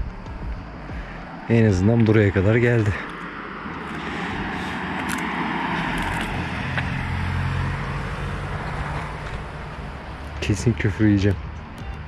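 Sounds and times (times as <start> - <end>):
vehicle driving past: 2.3 - 10.9.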